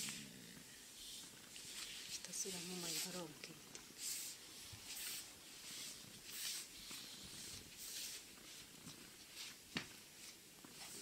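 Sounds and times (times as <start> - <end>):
hand rubbing dog fur: 1.0 - 9.6.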